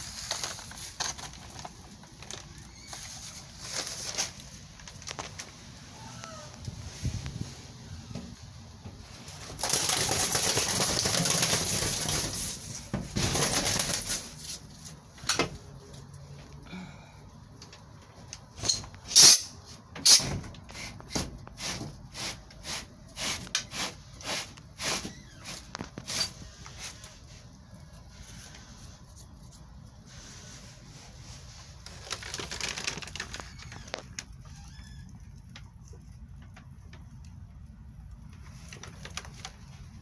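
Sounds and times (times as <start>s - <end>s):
plastic and newspaper rustling: 0.0s - 5.9s, 9.0s - 15.1s, 29.7s - 35.0s, 38.3s - 40.0s
dove wings beating: 9.4s - 14.4s.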